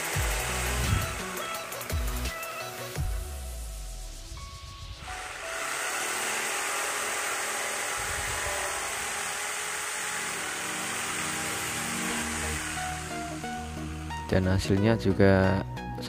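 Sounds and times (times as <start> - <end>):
jigsaw sawing wood: 0.0 - 2.4, 5.0 - 14.4.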